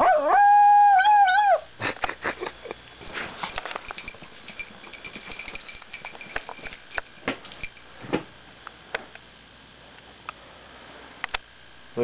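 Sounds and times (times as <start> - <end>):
small dog howling: 0.0 - 1.7.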